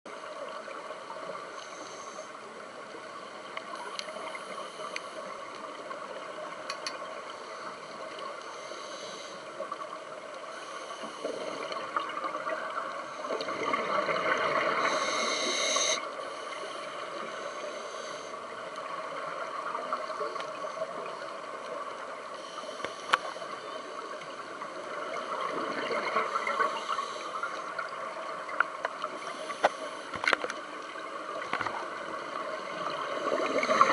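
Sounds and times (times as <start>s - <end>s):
muffled underwater hiss: 0.1s - 33.9s
regulator bubbles exhaled underwater: 11.1s - 16.1s, 23.6s - 29.7s, 30.4s - 33.9s.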